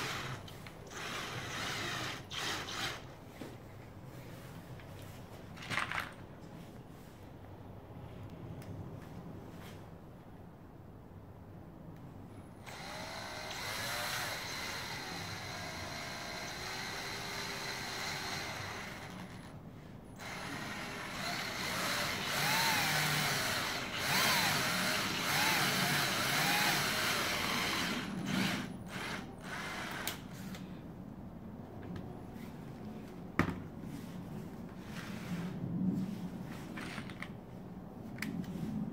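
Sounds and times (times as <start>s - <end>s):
cordless drill into wood: 0.0s - 3.1s, 12.6s - 19.5s, 20.2s - 30.6s.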